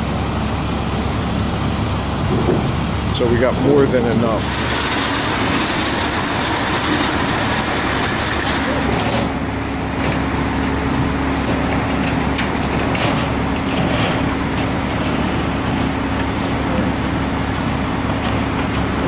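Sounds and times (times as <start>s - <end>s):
vehicle engine humming: 0.0s - 19.0s
wooden pallet scraping on steel: 4.2s - 18.9s.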